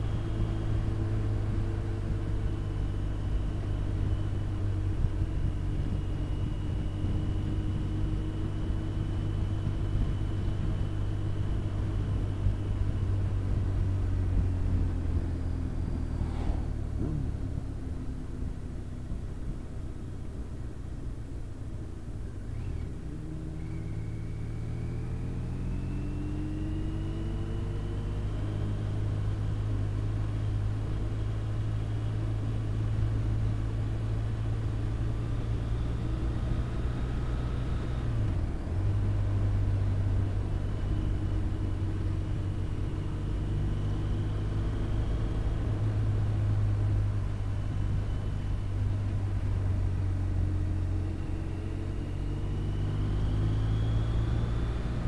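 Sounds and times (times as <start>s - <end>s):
motorcycle engine accelerating: 0.0s - 19.6s, 22.3s - 55.0s
wind rumble on microphone: 1.4s - 19.5s.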